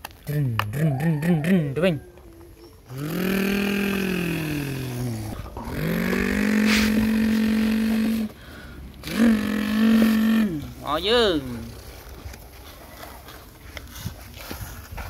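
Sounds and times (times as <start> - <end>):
child imitating engine noise: 2.9 - 8.4, 9.0 - 11.7.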